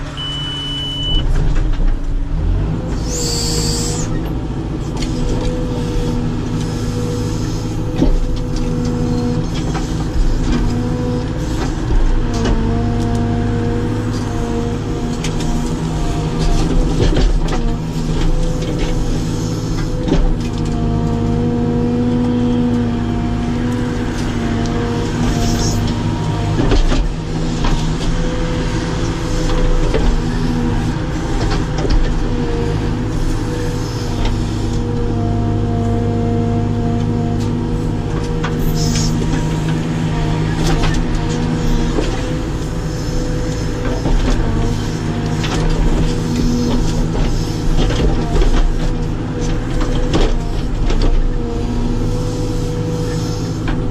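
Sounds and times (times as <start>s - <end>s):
backhoe diesel engine running: 0.0s - 53.9s
hydraulic whine: 3.0s - 4.4s.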